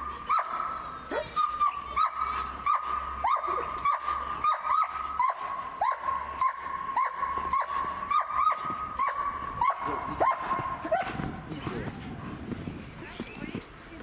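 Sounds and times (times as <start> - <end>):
dog barking in high yips: 0.3 - 11.2.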